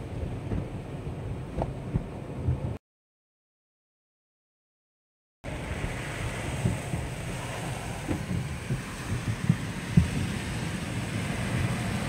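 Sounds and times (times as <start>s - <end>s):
car wash brushes and spray rumbling: 0.0s - 2.8s, 5.5s - 12.0s.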